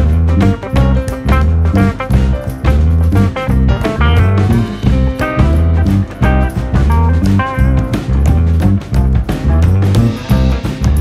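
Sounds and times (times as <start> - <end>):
plucked string music with beat: 0.0 - 11.0.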